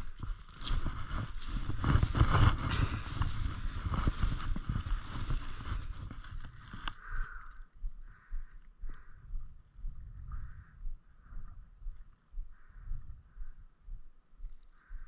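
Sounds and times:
snowshoe steps crunching snow: 0.0 - 6.9
wind buffeting microphone: 0.0 - 14.2.

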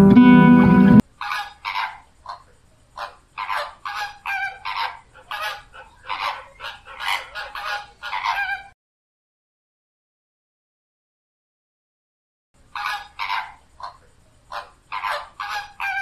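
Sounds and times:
flamingos honking: 0.0 - 1.0.

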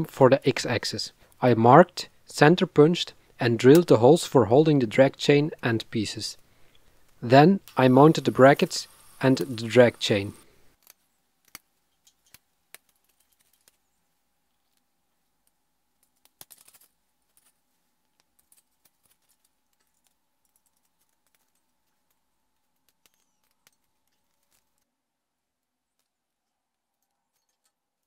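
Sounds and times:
small screws clicking and tapping: 10.7 - 13.8, 14.5 - 24.9, 25.9 - 28.0.

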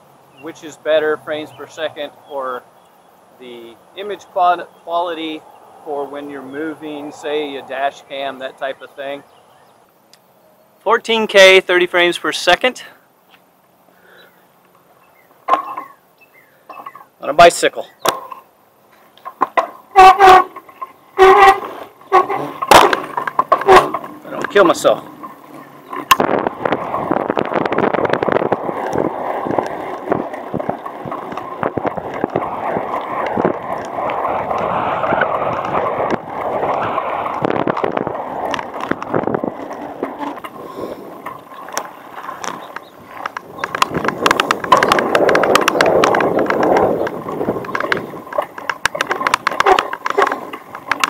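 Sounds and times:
bicycle rattles and knocks: 15.1 - 17.1, 18.0 - 51.0
tyre and wind rush: 19.5 - 51.0.

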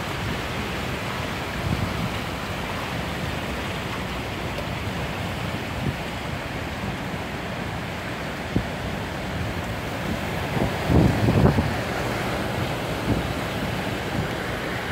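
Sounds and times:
car driving through floodwater: 0.0 - 14.9.

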